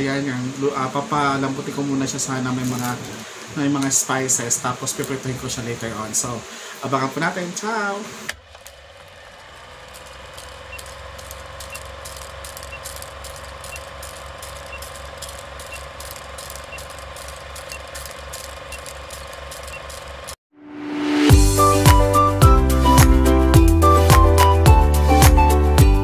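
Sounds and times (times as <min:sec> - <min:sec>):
rapid mechanical clicking: 0:08.2 - 0:20.4.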